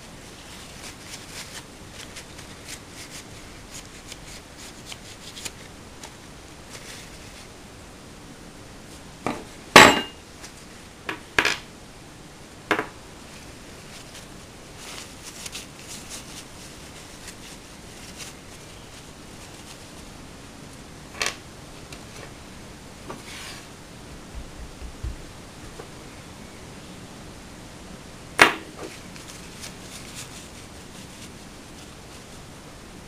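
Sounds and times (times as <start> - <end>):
soft rustle: 0.0 - 7.9, 10.3 - 11.0, 13.2 - 20.9, 21.7 - 26.0, 28.7 - 33.0.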